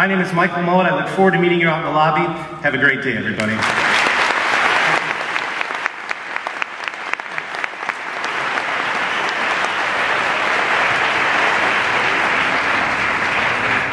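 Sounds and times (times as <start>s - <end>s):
audience applauding: 3.4s - 13.9s.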